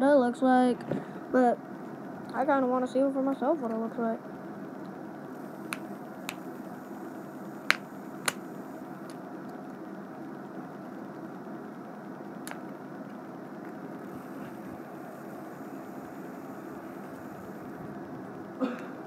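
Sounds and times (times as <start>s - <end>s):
steady room hum: 0.0s - 19.0s
snap bracelet clicks: 7.7s - 8.4s.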